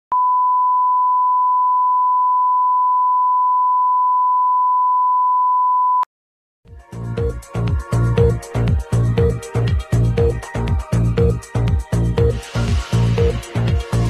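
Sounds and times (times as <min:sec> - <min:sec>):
broadcast test tone beep: 0:00.1 - 0:06.1.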